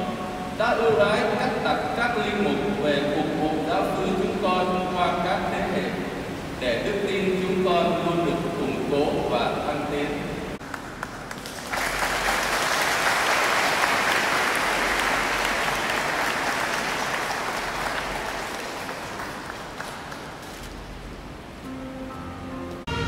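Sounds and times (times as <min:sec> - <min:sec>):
congregation applauding: 0:10.6 - 0:20.9.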